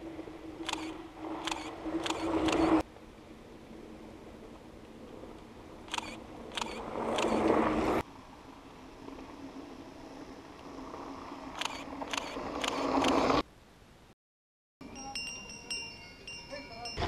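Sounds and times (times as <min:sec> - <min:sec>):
bike tyres rolling over gravel: 0:06.8 - 0:13.4.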